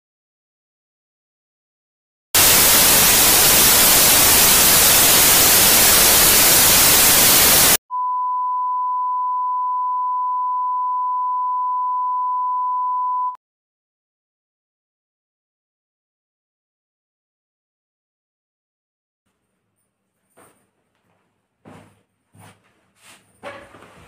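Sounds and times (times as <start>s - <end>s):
television static hiss: 2.4s - 7.8s
test-tone beep: 7.9s - 13.4s.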